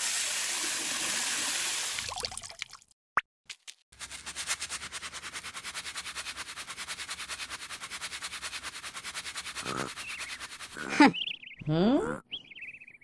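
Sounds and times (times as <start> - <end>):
rapid scrubbing strokes: 4.0 - 11.1.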